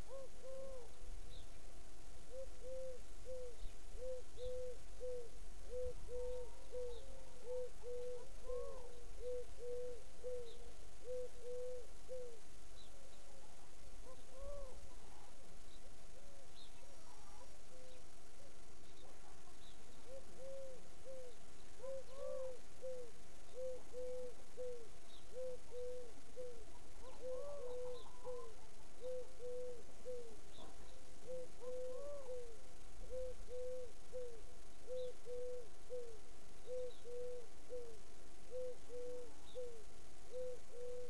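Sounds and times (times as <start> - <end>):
bird hooting: 0.0 - 1.0, 2.3 - 12.4, 14.0 - 15.3, 19.0 - 41.0
faint chirps: 2.3 - 41.0
rising and falling bird calls: 20.0 - 30.7.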